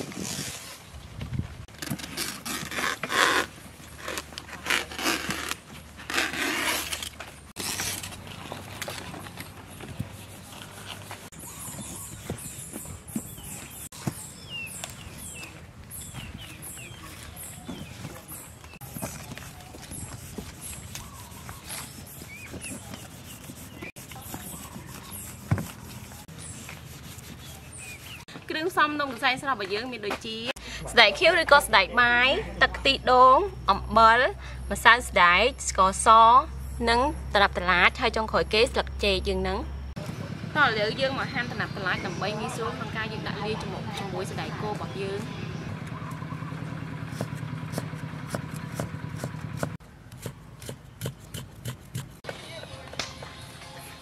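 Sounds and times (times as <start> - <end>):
leaves rustling and scraping: 0.0 - 28.3.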